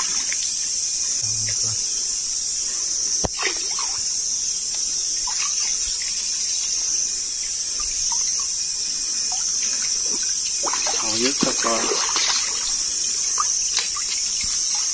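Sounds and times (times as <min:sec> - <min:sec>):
water trickling and dripping: 0:04.7 - 0:14.9.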